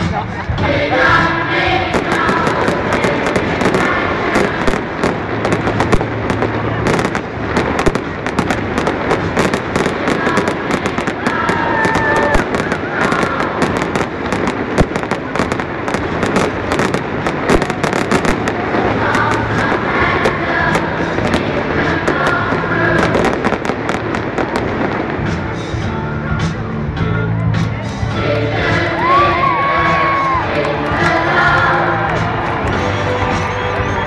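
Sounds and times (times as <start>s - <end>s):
fireworks crackling and banging: 0.0s - 26.7s.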